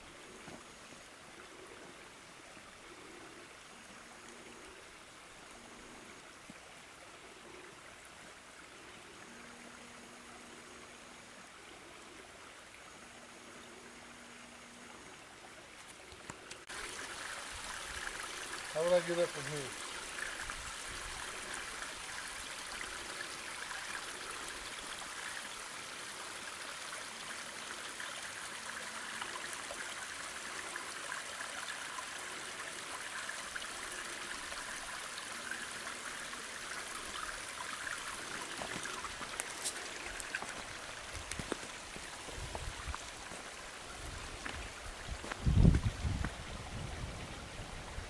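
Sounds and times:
creek splashing over stones: 14.6s - 48.0s.

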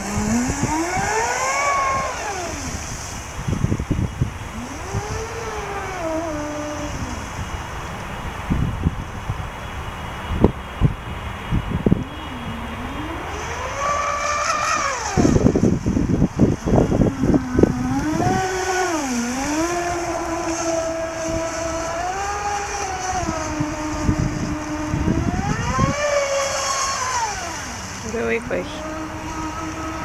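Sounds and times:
choppy low rumbling: 0.0s - 30.0s
rc boat motor whine: 0.0s - 30.0s.

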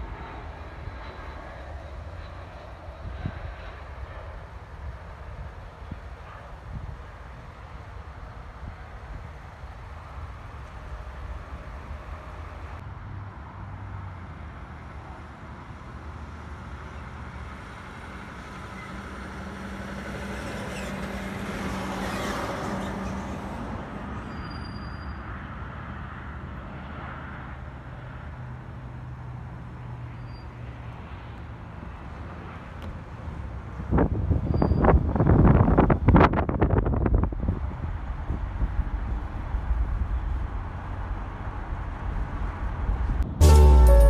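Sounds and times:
jet airliner passing low: 0.0s - 12.8s
road traffic and truck hum: 0.0s - 44.0s.

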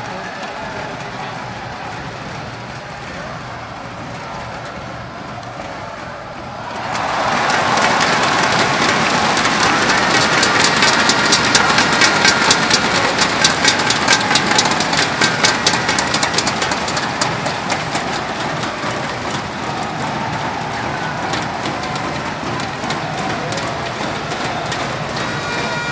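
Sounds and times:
crowd cheering: 0.0s - 25.9s
clapping and banging thundersticks: 6.7s - 25.9s.

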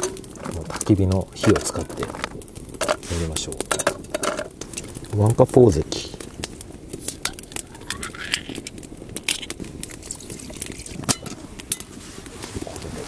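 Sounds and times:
wood fire crackling: 0.0s - 13.0s.

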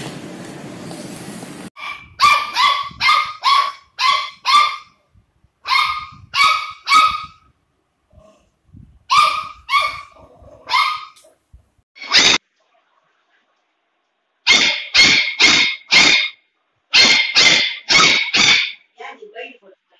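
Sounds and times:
puppy yapping barks: 1.8s - 5.0s, 5.6s - 7.4s, 9.1s - 11.2s, 12.0s - 12.4s, 14.5s - 18.8s.

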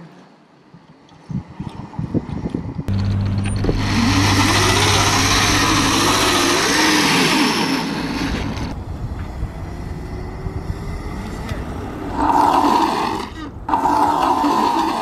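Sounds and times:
motor revving: 2.9s - 8.8s
rushing noise: 2.9s - 11.1s
low hum: 2.9s - 11.4s.

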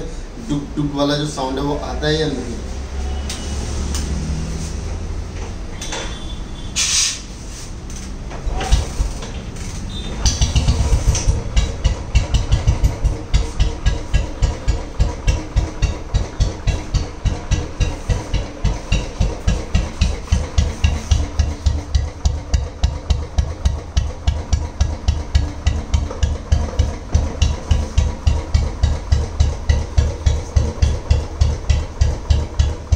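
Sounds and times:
motorcycle engine idling: 9.9s - 32.9s.

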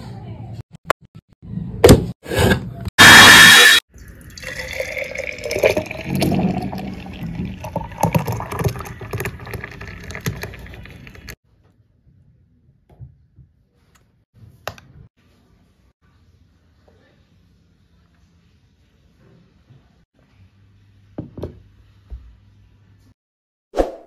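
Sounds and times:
grinder running: 3.0s - 3.8s
milkshake pouring into a mug: 4.0s - 11.4s.

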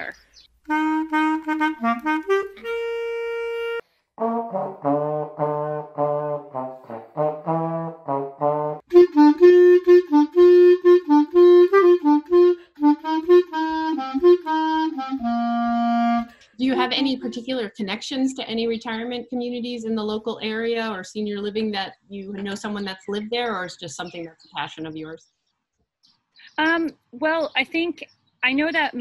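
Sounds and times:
clarinet playing: 0.6s - 17.1s
trombone playing low detached notes: 0.7s - 16.3s.

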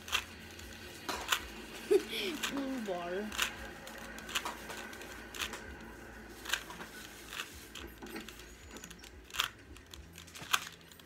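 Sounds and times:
puzzle cube clicking: 8.3s - 11.0s.

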